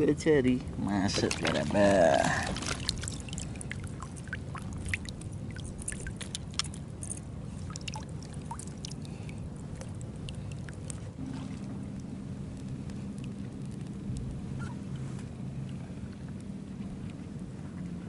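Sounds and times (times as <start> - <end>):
low steady rumble: 0.0 - 18.0
water dripping and splashing: 1.1 - 15.0
low hum: 2.1 - 18.0.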